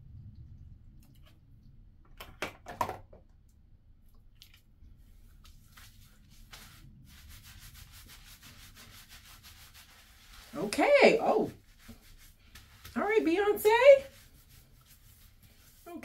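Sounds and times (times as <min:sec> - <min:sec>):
fingertips scrubbing wet hair: 0:04.4 - 0:16.0.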